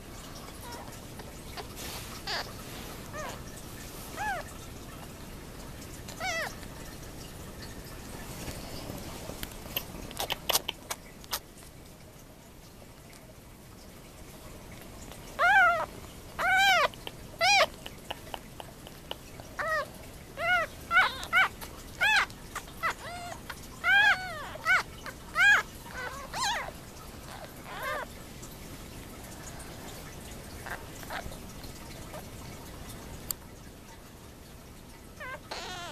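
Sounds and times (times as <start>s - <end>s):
kittens mewing: 0.6s - 3.5s, 4.1s - 4.6s, 6.1s - 6.6s, 15.1s - 28.1s, 35.2s - 35.9s.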